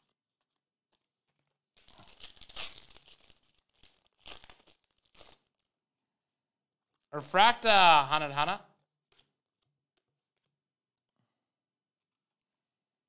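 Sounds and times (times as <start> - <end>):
foil wrapper tearing and crinkling: 0.9 - 5.8.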